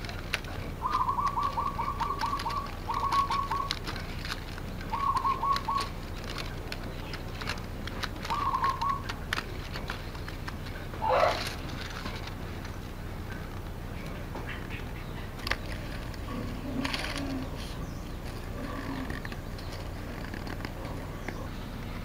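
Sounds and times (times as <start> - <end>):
bamboo strips clicking and rustling: 0.0 - 21.5
bird trilling: 0.7 - 7.5, 8.1 - 12.2, 13.3 - 22.0
loud bird call: 0.8 - 3.9, 4.9 - 6.0, 8.2 - 9.2, 11.0 - 11.6.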